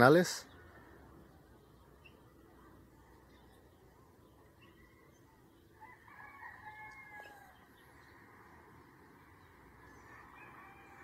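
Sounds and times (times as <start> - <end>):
rooster crowing: 5.8 - 7.8, 10.0 - 11.0.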